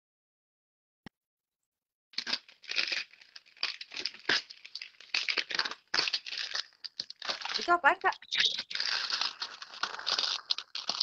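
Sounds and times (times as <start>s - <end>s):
plastic wrapping crinkling and tearing: 2.2s - 11.0s.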